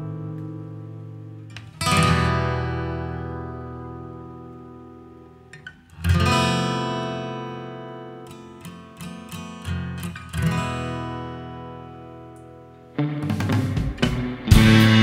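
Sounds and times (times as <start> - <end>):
picked guitar notes: 0.0 - 15.0
strummed acoustic guitar chord: 13.0 - 15.0.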